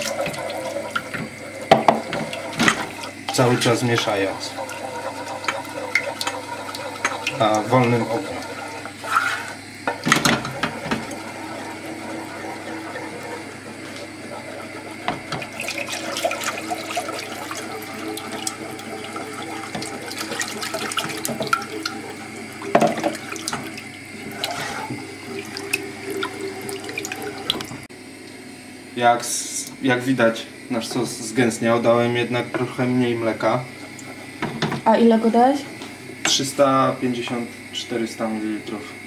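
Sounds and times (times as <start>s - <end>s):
milk pouring: 0.0s - 9.6s, 10.6s - 27.9s
liquid sloshing: 0.0s - 27.9s
spoon scraping a pan: 9.0s - 9.6s.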